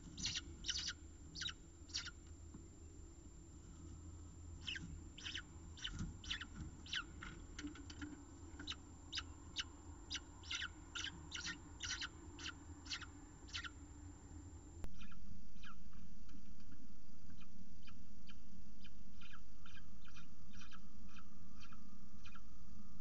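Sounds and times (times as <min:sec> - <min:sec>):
falcon chicks begging calls: 0:00.2 - 0:02.2, 0:04.6 - 0:07.4, 0:08.6 - 0:13.8.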